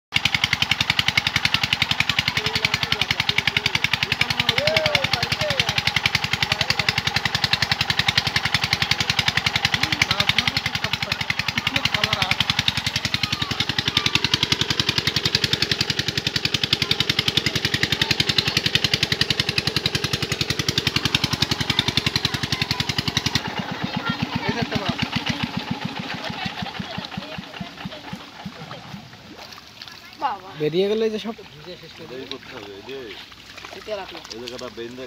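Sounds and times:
small engine knocking: 0:00.1 - 0:35.0.

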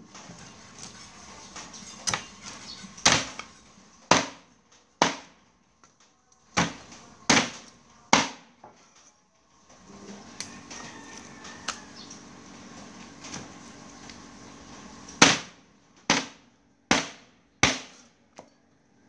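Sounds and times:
cleaver chopping on wooden block: 0:05.0 - 0:05.3, 0:16.1 - 0:18.0.

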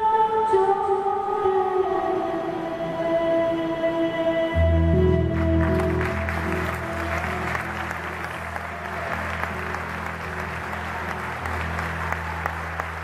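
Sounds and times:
audience applauding: 0:05.3 - 0:13.0.

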